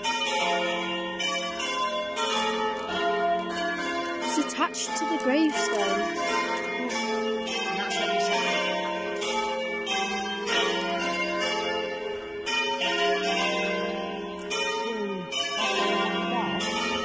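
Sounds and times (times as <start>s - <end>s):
church bells ringing: 0.0s - 17.0s.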